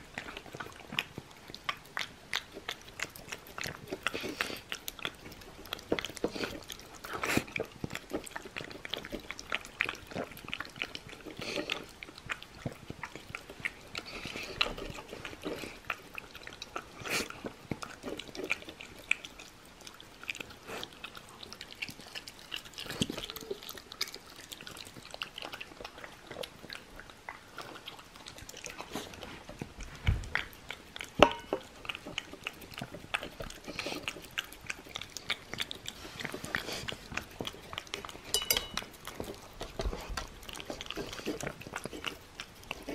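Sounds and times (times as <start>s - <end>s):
dog licking and chewing: 0.0s - 42.9s
knock on metal bowl: 31.2s - 31.6s, 38.3s - 38.8s.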